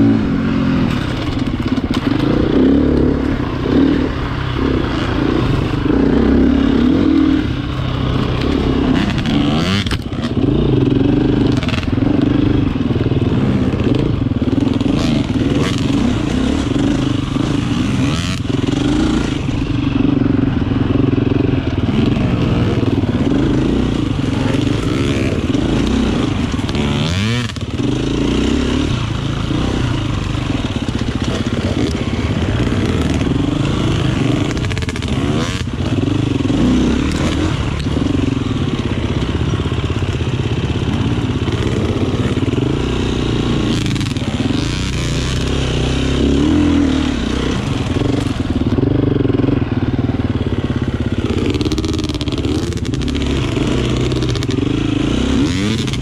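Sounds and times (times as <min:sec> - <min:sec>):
motorcycle engine revving: 0:00.0 - 0:56.0.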